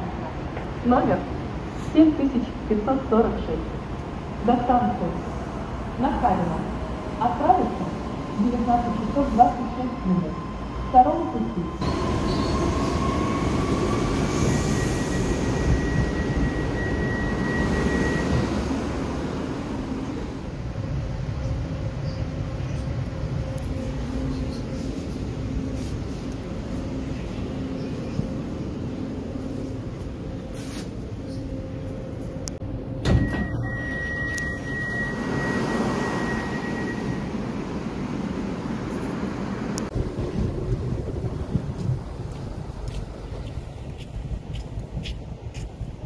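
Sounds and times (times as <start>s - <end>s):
train equipment hum: 0.0s - 46.0s
open-air platform hiss: 11.8s - 46.0s
steady high beep: 14.5s - 18.9s, 33.1s - 37.5s
train doors opening with a thud: 32.8s - 37.6s.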